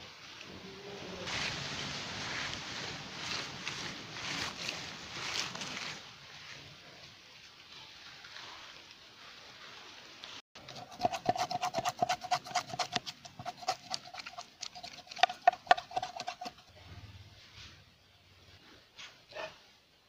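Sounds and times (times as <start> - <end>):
knife scraping fish scales: 10.6 - 16.7.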